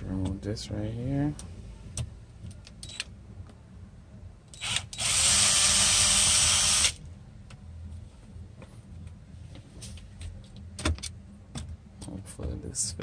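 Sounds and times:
cordless drill motor: 4.6s - 7.0s.

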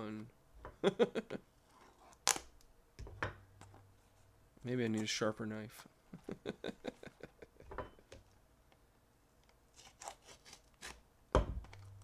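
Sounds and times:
knife scraping plastic wrap: 9.7s - 11.0s.

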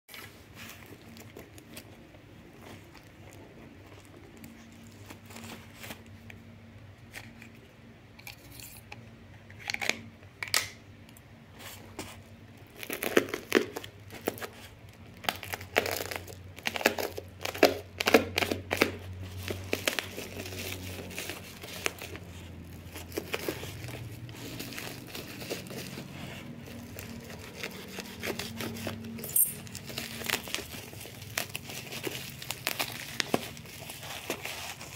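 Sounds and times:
plastic wrapping crinkling and tearing: 0.1s - 6.3s, 11.7s - 34.9s.

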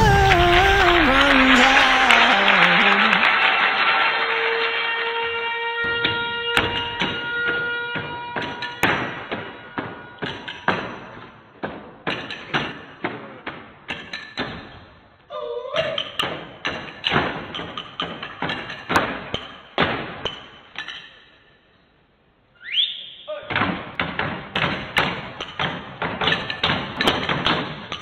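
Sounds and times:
person crying out: 15.3s - 16.0s.

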